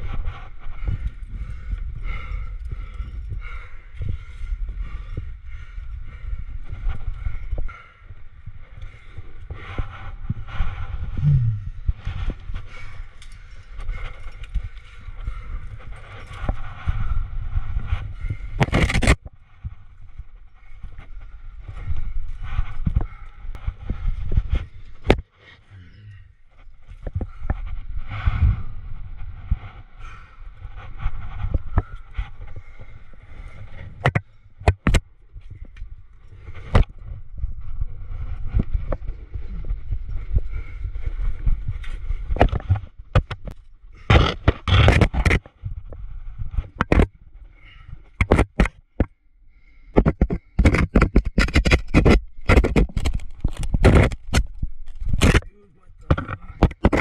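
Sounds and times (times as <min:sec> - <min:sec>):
low rumble: 0:00.0 - 0:18.6
wind rumble on microphone: 0:00.0 - 0:57.0.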